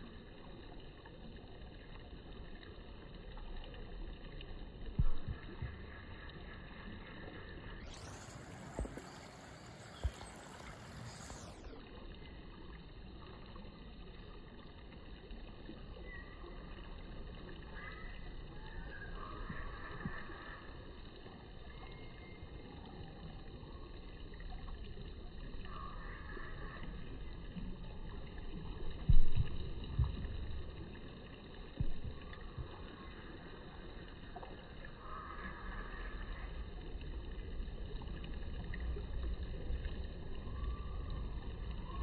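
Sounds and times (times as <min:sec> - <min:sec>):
low steady rumble: 0:00.0 - 0:42.0.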